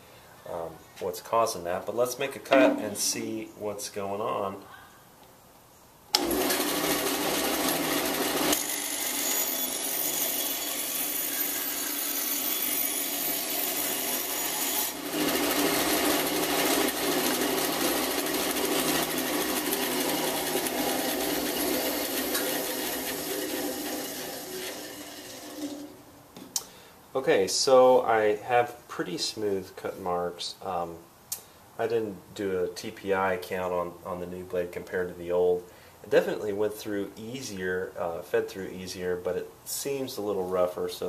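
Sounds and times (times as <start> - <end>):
bandsaw cutting wood: 6.2 - 25.9.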